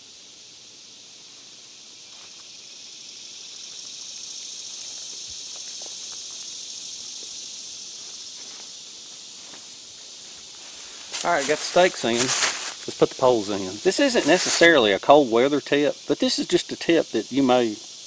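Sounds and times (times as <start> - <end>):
insects droning: 0.0 - 18.0
tent stakes pushed into leaves: 9.4 - 14.9.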